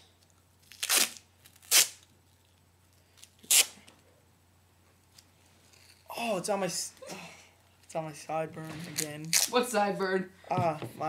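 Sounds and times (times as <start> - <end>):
duct tape ripping: 0.6 - 2.6, 3.2 - 3.9, 8.6 - 9.6.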